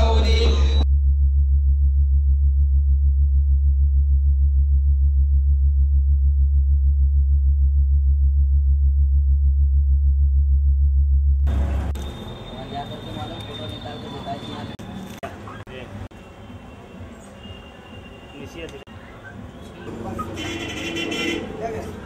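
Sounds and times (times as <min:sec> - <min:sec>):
low pulsing electronic drone: 0:00.0 - 0:12.6.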